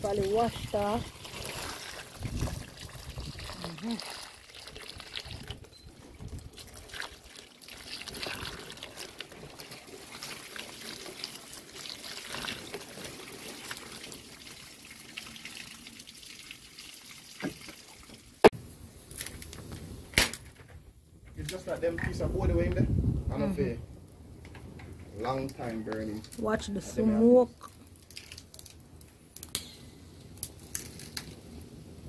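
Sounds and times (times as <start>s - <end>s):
water pouring and splashing: 0.0s - 18.5s, 24.6s - 29.1s.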